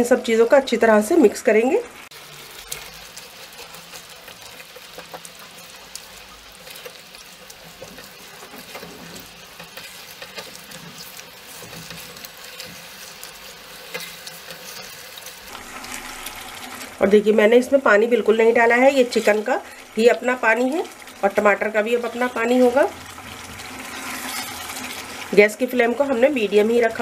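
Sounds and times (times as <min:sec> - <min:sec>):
food sizzling in oil: 0:00.0 - 0:27.0
spatula clicking and scraping: 0:02.5 - 0:16.4, 0:23.3 - 0:25.3.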